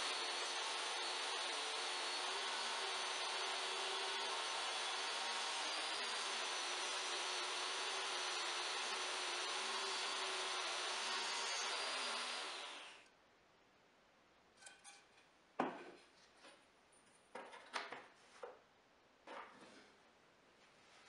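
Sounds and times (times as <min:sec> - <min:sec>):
table saw whine: 0:00.0 - 0:13.0
boards knocking on wood: 0:15.6 - 0:16.0.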